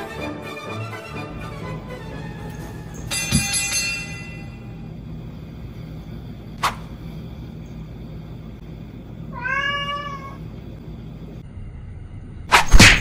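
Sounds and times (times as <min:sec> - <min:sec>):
cat meowing: 0:09.3 - 0:10.4.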